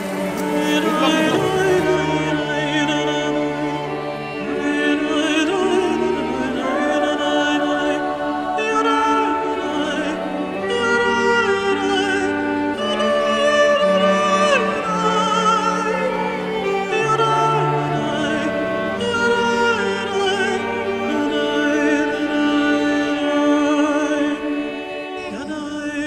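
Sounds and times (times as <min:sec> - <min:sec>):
sustained chords: 0:00.0 - 0:15.2
slow sung melody with vibrato: 0:00.0 - 0:26.0.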